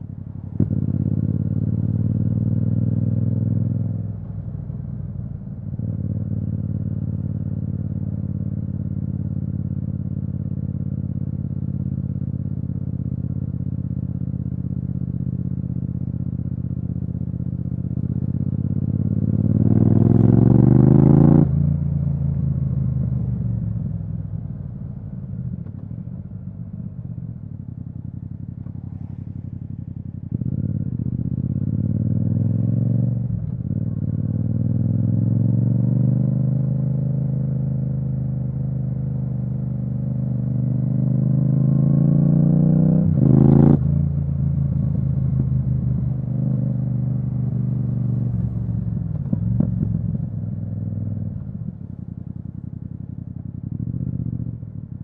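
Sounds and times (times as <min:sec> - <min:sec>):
motorcycle engine revving: 0:00.0 - 0:04.0, 0:15.8 - 0:24.3, 0:28.1 - 0:54.9.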